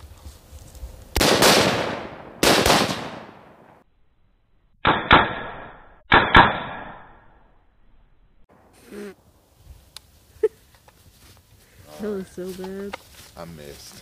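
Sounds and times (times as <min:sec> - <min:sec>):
rifle gunshots with echo: 0:01.2 - 0:03.8.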